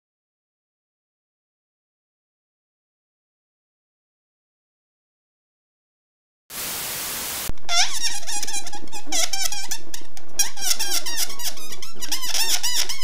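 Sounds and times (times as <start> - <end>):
static hiss: 6.5 - 7.6
balloon squealing as air escapes: 7.7 - 13.0.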